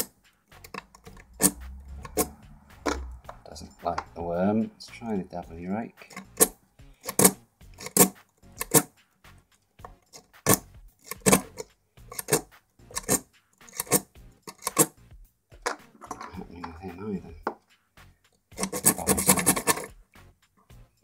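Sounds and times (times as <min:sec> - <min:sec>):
lock pick scraping clicks: 0:06.1 - 0:08.9, 0:09.8 - 0:14.9, 0:18.6 - 0:19.9.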